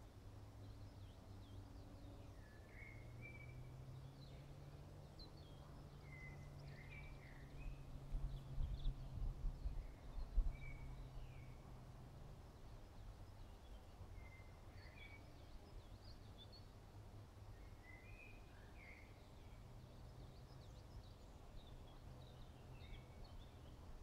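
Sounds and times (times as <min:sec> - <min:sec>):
small birds chirping: 0:00.0 - 0:24.0
low rumbling on microphone: 0:05.8 - 0:11.6.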